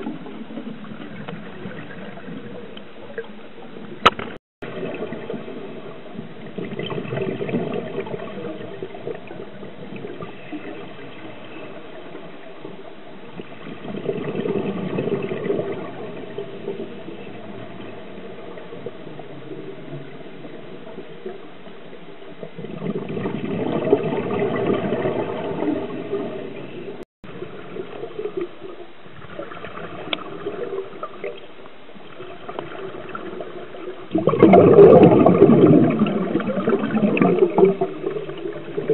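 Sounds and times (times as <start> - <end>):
underwater air bubbling: 0.0 - 38.9.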